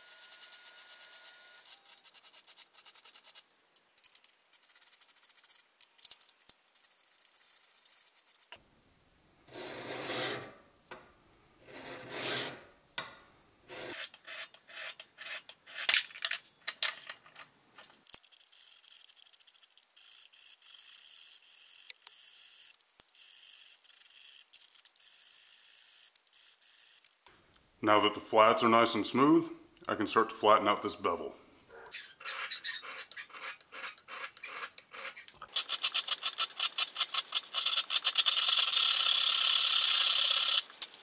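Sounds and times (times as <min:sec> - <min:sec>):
file rasping on steel blade: 0:09.5 - 0:10.5, 0:11.6 - 0:12.6, 0:13.7 - 0:15.9, 0:32.0 - 0:36.4.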